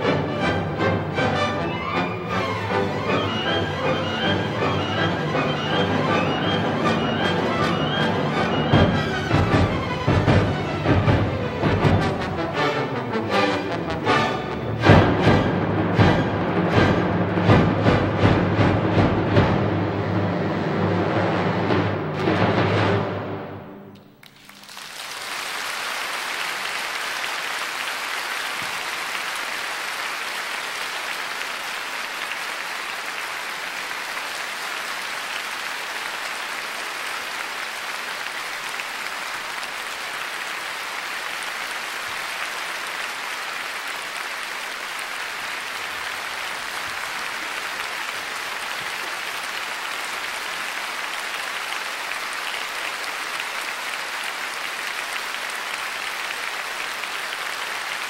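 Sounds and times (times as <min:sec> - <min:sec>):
audience applauding: 0:00.0 - 0:20.8, 0:23.9 - 0:58.0.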